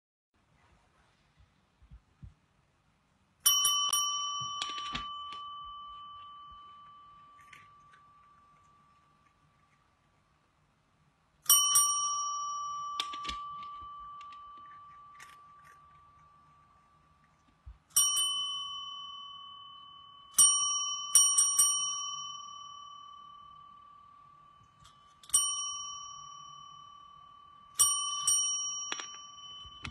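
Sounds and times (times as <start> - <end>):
taps and rattles on bell: 3.4 - 7.1, 24.6 - 29.9
desk bell ding: 3.4 - 8.9, 11.5 - 15.2, 18.0 - 29.9.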